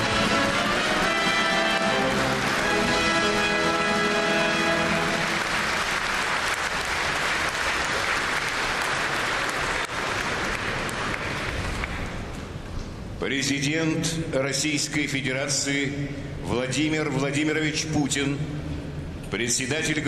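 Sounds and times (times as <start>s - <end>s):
music: 0.0s - 6.1s
audience applauding: 0.0s - 12.3s.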